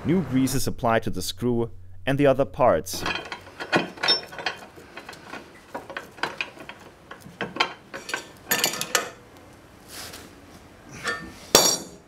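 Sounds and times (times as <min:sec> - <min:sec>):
steel vise parts clinking: 0:03.0 - 0:09.3, 0:11.0 - 0:12.0.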